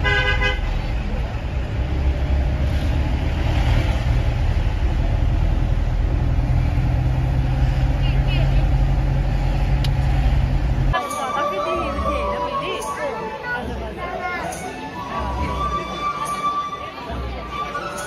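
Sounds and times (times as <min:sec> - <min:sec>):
vehicle engine and road rumble: 0:00.0 - 0:18.0.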